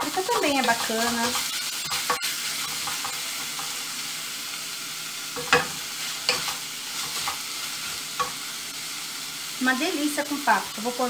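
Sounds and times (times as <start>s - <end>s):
wooden spatula scraping: 0.0s - 3.8s, 5.4s - 8.4s
food sizzling in a pot: 0.0s - 11.0s.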